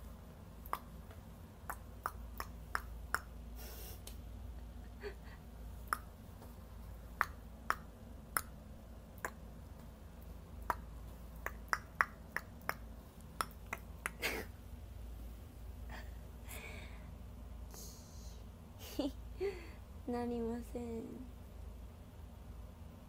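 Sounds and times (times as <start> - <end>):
finger snap clicks: 0.6 - 3.3, 7.2 - 8.6, 10.6 - 14.2.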